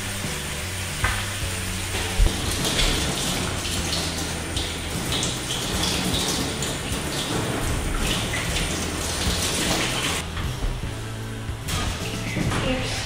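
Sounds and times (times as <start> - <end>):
hose spray hissing: 0.0 - 10.3.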